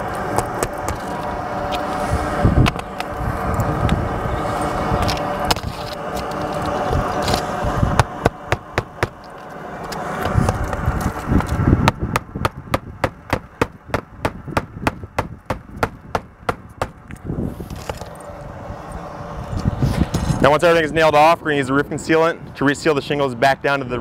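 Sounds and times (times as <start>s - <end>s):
low rumble: 0.0s - 21.2s
hammer striking nails: 11.8s - 17.0s.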